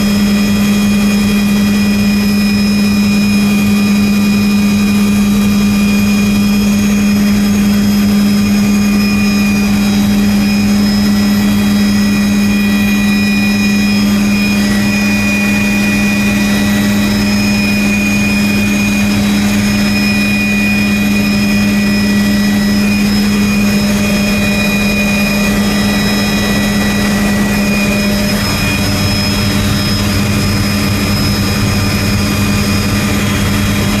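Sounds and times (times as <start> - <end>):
helicopter engine and rotor drone: 0.0 - 34.0
high whine: 0.0 - 34.0.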